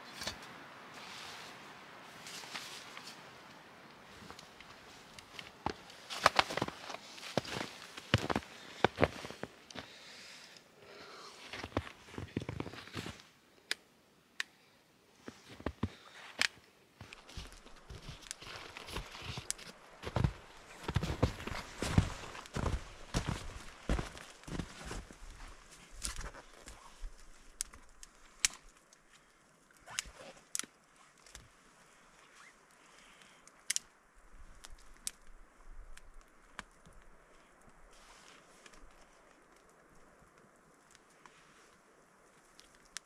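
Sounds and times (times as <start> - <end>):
faint steady hiss: 0.0 - 43.0
soft rustling: 0.2 - 10.0, 15.2 - 29.3, 37.0 - 40.2
campfire crackling and popping: 2.8 - 10.6, 15.9 - 43.0.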